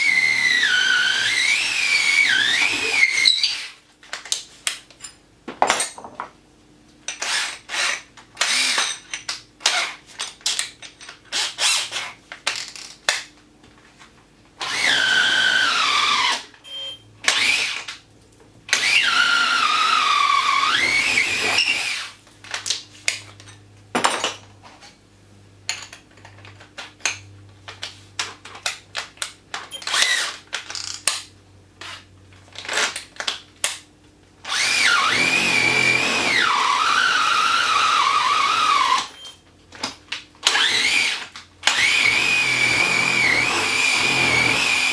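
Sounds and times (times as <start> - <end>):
cordless drill drilling into wood: 0.0 - 3.7, 7.2 - 8.8, 14.6 - 16.4, 17.3 - 17.8, 18.7 - 22.2, 34.5 - 39.1, 40.5 - 44.9.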